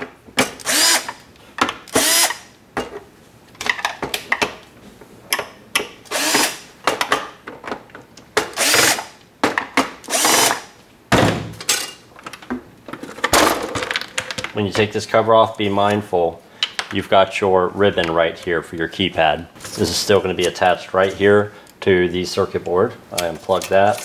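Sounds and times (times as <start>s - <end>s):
cordless drill whining: 0.6s - 1.2s, 1.9s - 2.4s, 6.1s - 6.6s, 8.6s - 9.1s, 10.1s - 10.6s.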